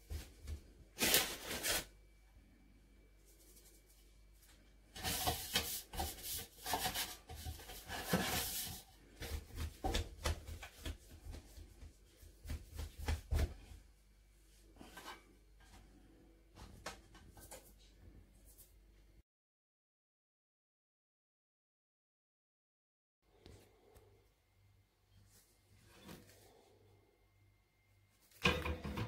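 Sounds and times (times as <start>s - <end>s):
dough handling with soft knocks: 4.5s - 18.2s.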